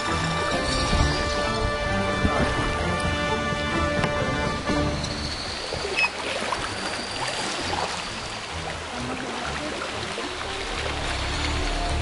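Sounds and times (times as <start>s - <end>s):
water splashing against canoe: 0.0s - 4.6s.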